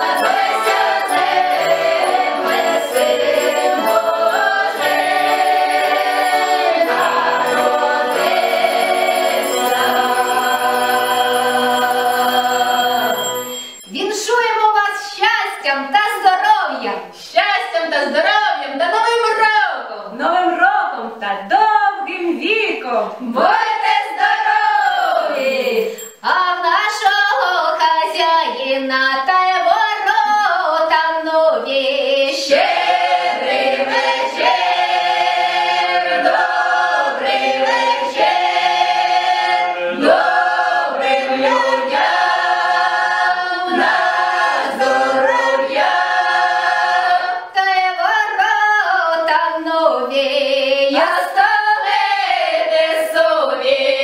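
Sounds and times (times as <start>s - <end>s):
choir singing in close harmony: 0.0s - 13.7s, 23.4s - 26.0s, 31.4s - 47.6s, 50.1s - 54.0s.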